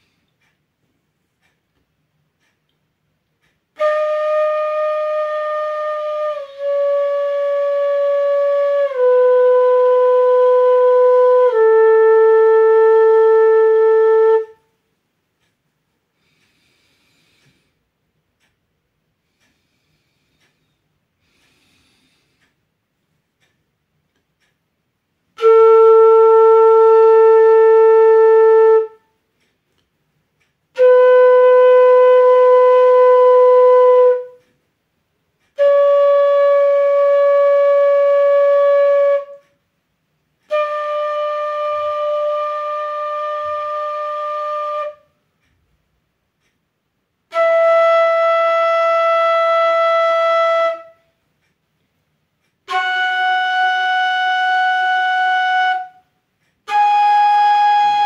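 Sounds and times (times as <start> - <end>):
bamboo flute held notes: 3.7 - 14.8, 25.3 - 29.2, 30.7 - 34.6, 35.4 - 39.6, 40.4 - 45.6, 47.3 - 51.2, 52.5 - 58.0.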